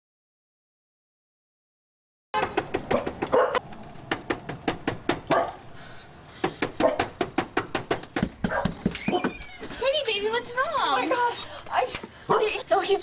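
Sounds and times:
dog barking: 2.4s - 3.6s, 5.3s - 5.6s, 6.8s - 7.1s, 8.4s - 8.8s, 12.3s - 12.6s.

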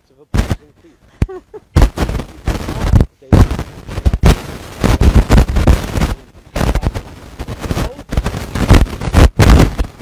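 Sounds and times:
man's voice: 0.0s - 1.0s, 2.5s - 4.1s, 5.8s - 8.2s
crackling distortion: 0.0s - 10.0s.

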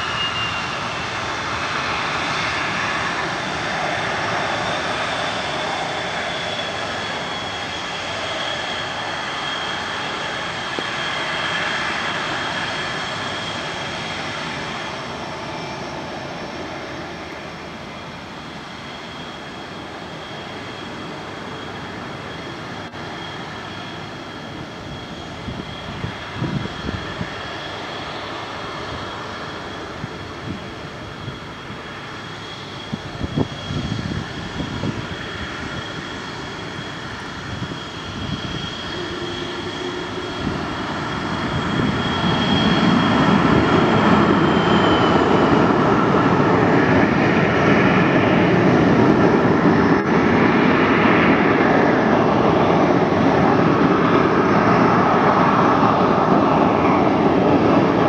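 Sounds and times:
jet engines whining: 0.0s - 58.0s
wind gusts on microphone: 24.5s - 58.0s.

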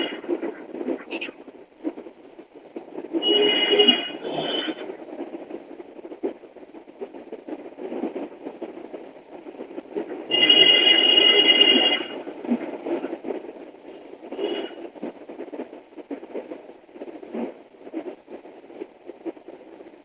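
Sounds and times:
muffled rustling: 0.0s - 20.0s
telephone ringing: 3.2s - 4.6s, 10.3s - 12.1s.

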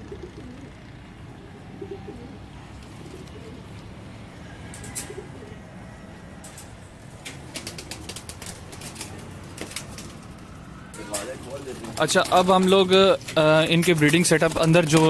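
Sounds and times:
pigeons cooing: 0.0s - 13.7s
sharp taps and flutters: 6.4s - 15.0s.

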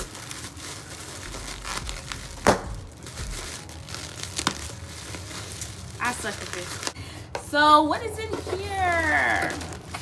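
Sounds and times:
cardboard packaging crinkling and tearing: 0.0s - 7.0s, 8.8s - 10.0s.

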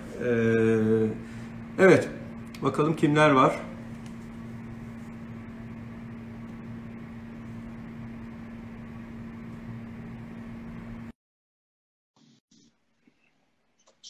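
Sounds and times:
low hum: 0.0s - 11.1s.

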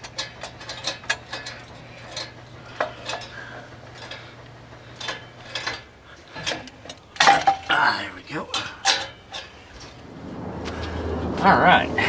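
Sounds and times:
tool tapping metal pipes: 0.0s - 4.3s, 5.0s - 7.9s, 8.5s - 9.6s.

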